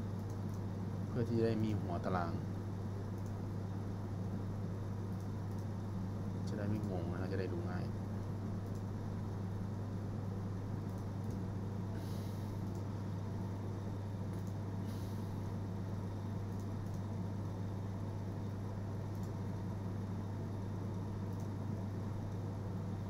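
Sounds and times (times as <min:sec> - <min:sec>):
steady low hum: 0:00.0 - 0:23.0
computer mouse clicks: 0:00.2 - 0:00.6, 0:03.1 - 0:03.4, 0:05.1 - 0:05.7, 0:08.6 - 0:08.9, 0:10.8 - 0:11.4, 0:12.6 - 0:12.9, 0:14.3 - 0:14.6, 0:16.5 - 0:17.2, 0:19.1 - 0:19.4, 0:20.9 - 0:21.6.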